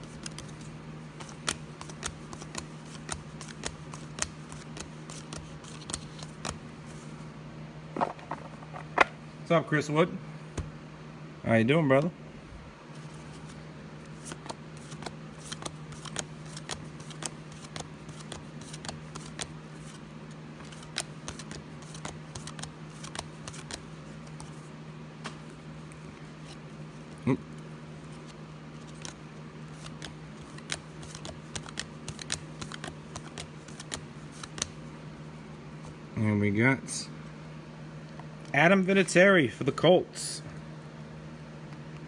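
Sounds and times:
cards being thumbed through: 0:00.0 - 0:06.6, 0:08.0 - 0:09.2, 0:13.1 - 0:20.0, 0:20.6 - 0:24.6, 0:28.2 - 0:34.8
steady low hum: 0:00.0 - 0:42.0.

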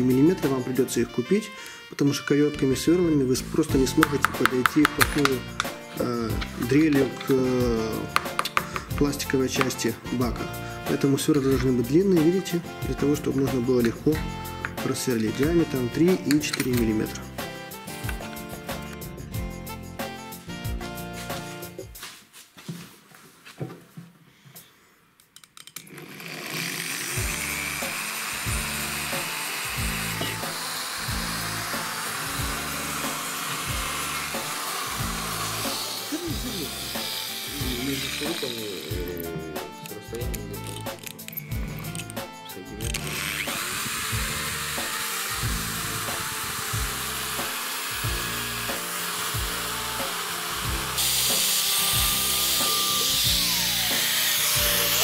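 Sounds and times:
background music with steady beat: 0:00.0 - 0:23.0, 0:27.2 - 0:55.0
electric drill boring into plastic: 0:03.6 - 0:19.0, 0:25.8 - 0:42.2, 0:42.8 - 0:55.0
knocks and clicks: 0:04.0 - 0:07.2, 0:08.1 - 0:09.8.

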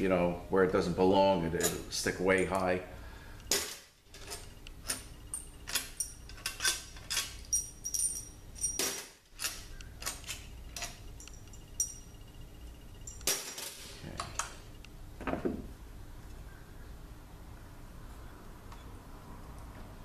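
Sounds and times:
metal bolts clinking in hand: 0:03.5 - 0:12.1.

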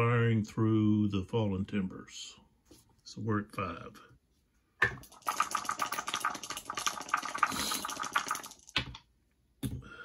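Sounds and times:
dice rattling in a cup: 0:05.0 - 0:08.9.

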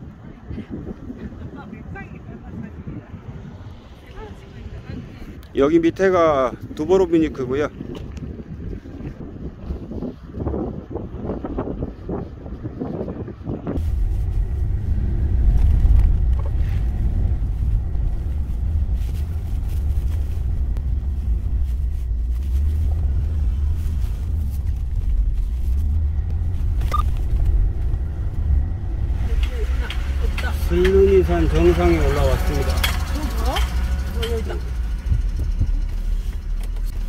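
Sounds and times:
wind on microphone: 0:00.0 - 0:37.0
car engine rumble in cabin: 0:11.5 - 0:37.0.

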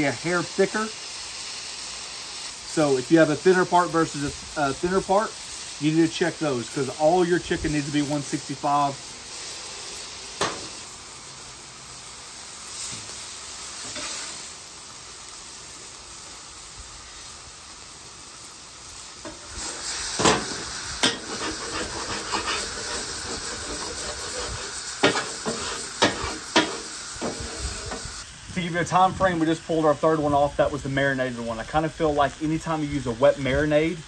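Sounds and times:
chicken sizzling on griddle: 0:00.0 - 0:34.0
metal spatulas scraping griddle: 0:13.8 - 0:14.4, 0:19.2 - 0:28.0.

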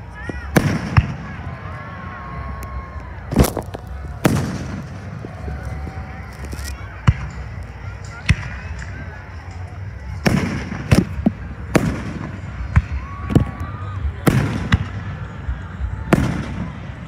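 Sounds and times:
low rumble after bangs: 0:00.2 - 0:09.0.

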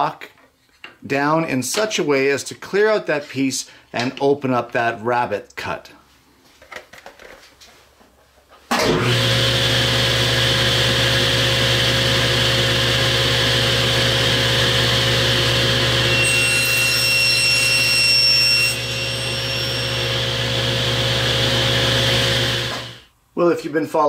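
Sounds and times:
table saw running: 0:08.8 - 0:23.1
saw blade whining through plastic: 0:15.7 - 0:23.0.

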